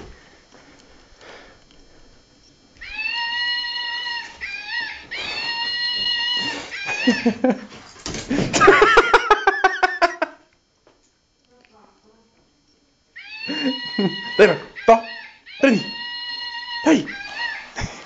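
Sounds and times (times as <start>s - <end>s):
dog howling whines: 2.8s - 7.4s, 13.2s - 17.8s
dog yelping grumbles: 13.2s - 17.9s.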